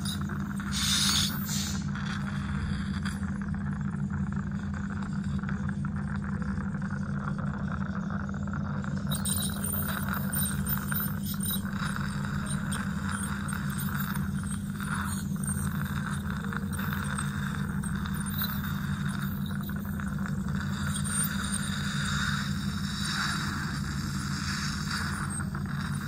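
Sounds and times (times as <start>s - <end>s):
faint scraping of dental instruments: 0.0s - 7.8s, 8.6s - 26.0s
dental suction humming and hissing: 0.0s - 26.0s.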